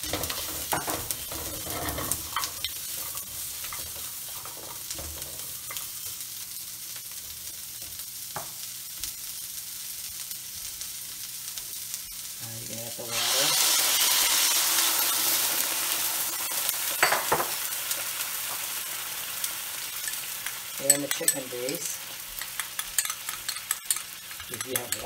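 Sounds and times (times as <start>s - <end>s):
spatula scraping a wok: 0.0s - 5.9s
vegetables sizzling in a wok: 0.0s - 25.0s.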